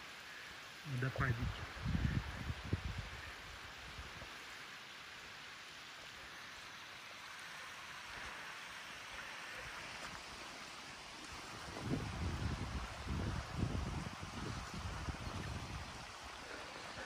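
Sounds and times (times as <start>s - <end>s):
waterfall rushing: 4.3s - 17.0s.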